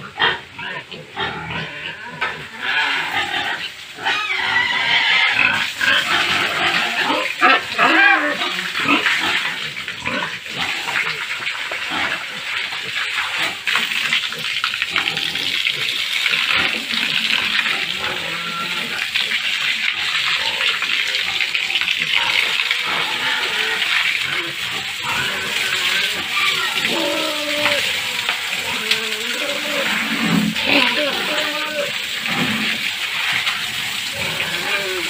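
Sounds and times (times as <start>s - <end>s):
water rushing from a hose: 0.0s - 35.0s
piglets squealing: 0.6s - 9.2s, 17.7s - 19.1s, 22.0s - 32.0s, 34.1s - 35.0s.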